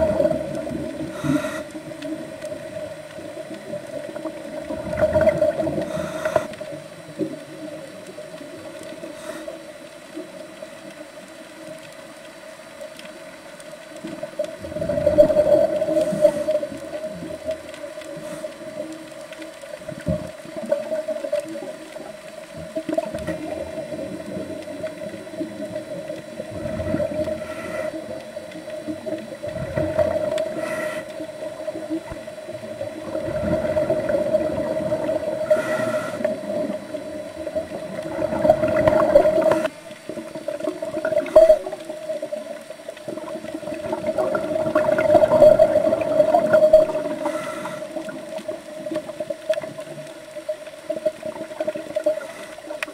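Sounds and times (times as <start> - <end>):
bubbles hissing: 0.0 - 9.5, 14.0 - 19.1, 19.7 - 52.9
muffled water noise: 0.0 - 52.9
underwater droning hum: 0.0 - 52.9.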